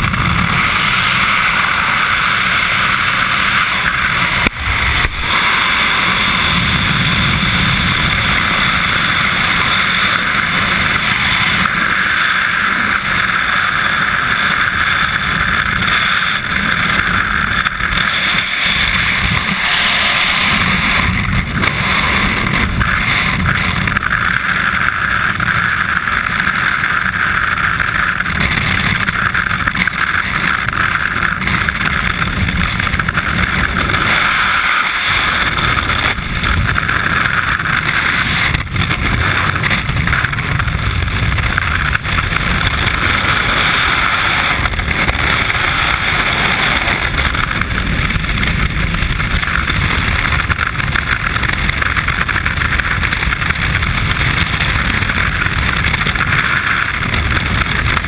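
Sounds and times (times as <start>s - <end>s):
wind rushing over microphone: 0.0s - 58.0s.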